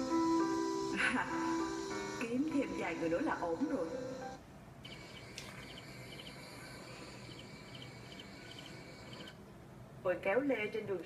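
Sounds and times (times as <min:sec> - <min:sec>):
crickets chirping: 0:04.8 - 0:09.4.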